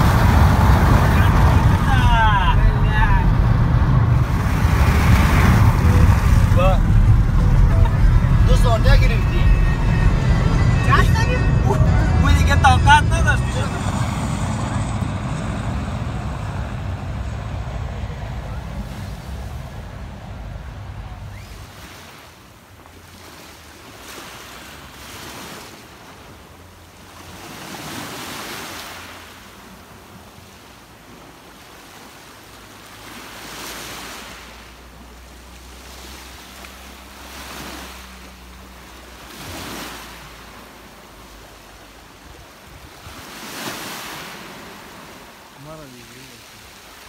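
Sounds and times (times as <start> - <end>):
waves washing onto pebbles: 0.0 - 7.8, 30.6 - 47.0
low steady rumble: 0.0 - 21.8.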